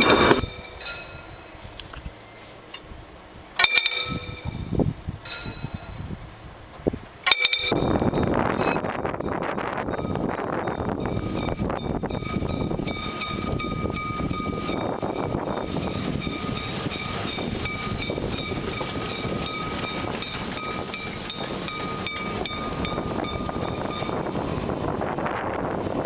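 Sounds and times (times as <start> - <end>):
wheel flanges squealing: 0.0 - 2.8
steam train rumbling and clicking: 0.0 - 26.0.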